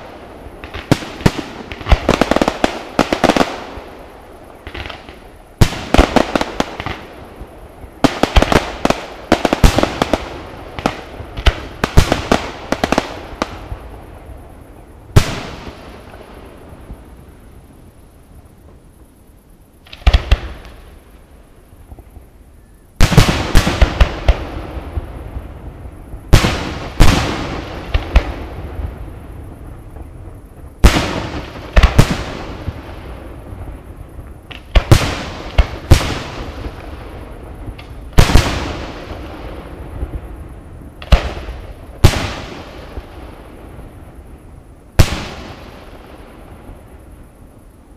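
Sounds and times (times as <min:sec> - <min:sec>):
fireworks bangs with echo: 0:23.0 - 0:25.5, 0:26.2 - 0:29.0, 0:34.5 - 0:40.2, 0:41.0 - 0:43.2, 0:45.0 - 0:46.9.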